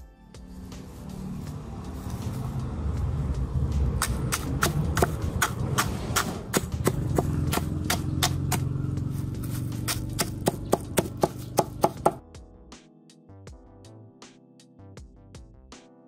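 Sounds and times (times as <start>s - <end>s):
hammer knocking on wooden block: 10.2s - 12.2s.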